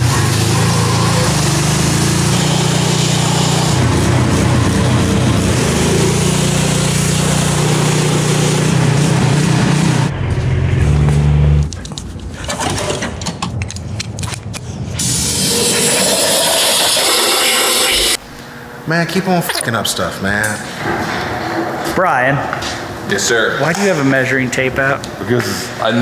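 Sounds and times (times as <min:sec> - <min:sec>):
high-pressure water jet hissing: 0:00.0 - 0:09.9, 0:15.0 - 0:18.2
small gas engine running: 0:00.0 - 0:10.1.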